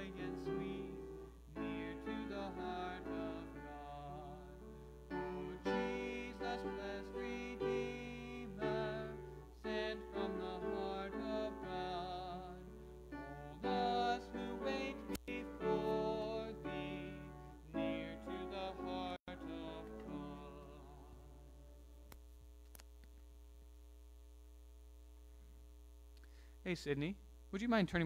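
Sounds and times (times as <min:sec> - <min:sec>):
keyboard accompaniment: 0:00.0 - 0:21.8
hymn singing: 0:00.0 - 0:22.1
steady electrical hum: 0:00.0 - 0:28.0.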